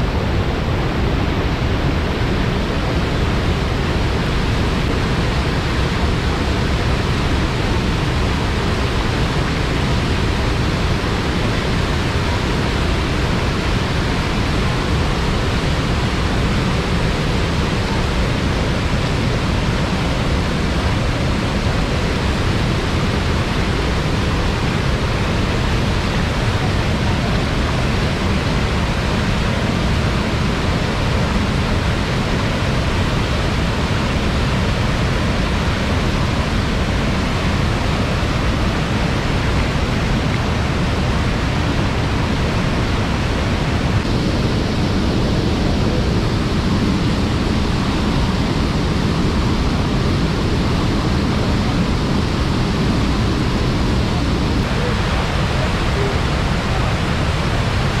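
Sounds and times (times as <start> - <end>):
water rushing over a weir: 0.0 - 58.0.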